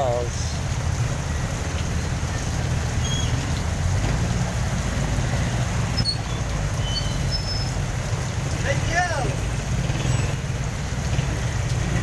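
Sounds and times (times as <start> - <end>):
heavy rain pouring on street: 0.0 - 12.0
vehicle engines idling: 0.0 - 12.0.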